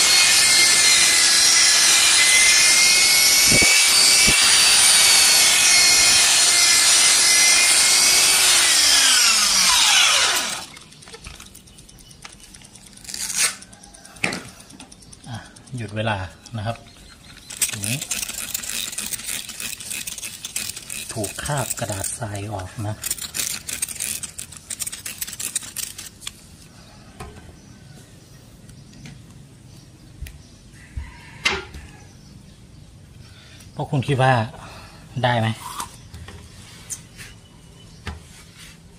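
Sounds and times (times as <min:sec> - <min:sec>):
electric polisher whining: 0:00.0 - 0:10.8
isolated clicks: 0:10.7 - 0:17.6.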